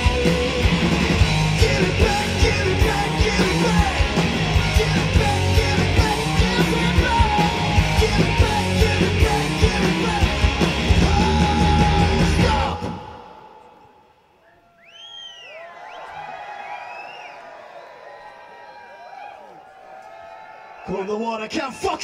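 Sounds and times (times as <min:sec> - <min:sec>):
hard rock band playing: 0:00.0 - 0:13.4.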